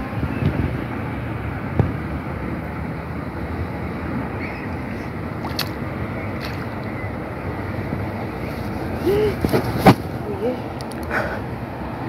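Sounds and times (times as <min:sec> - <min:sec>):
wind buffeting microphone: 0:00.0 - 0:02.4.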